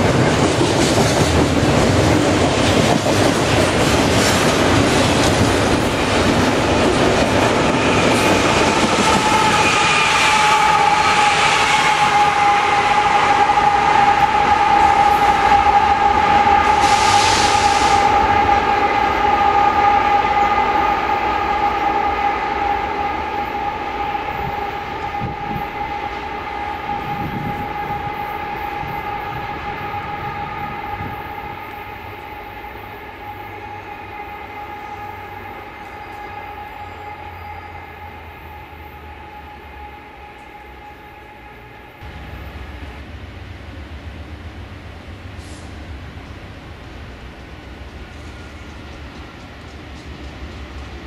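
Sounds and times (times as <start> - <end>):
freight train passing: 0.0 - 51.0
burst of hiss: 16.7 - 18.2, 45.4 - 45.9.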